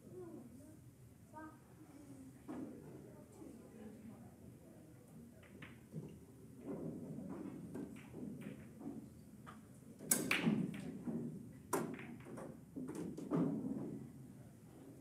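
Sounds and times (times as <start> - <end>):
cue ball cracking into rack: 10.0 - 11.2.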